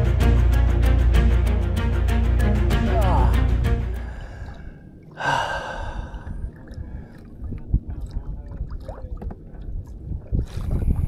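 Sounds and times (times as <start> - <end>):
water sloshing against kayak hull: 6.0 - 11.0.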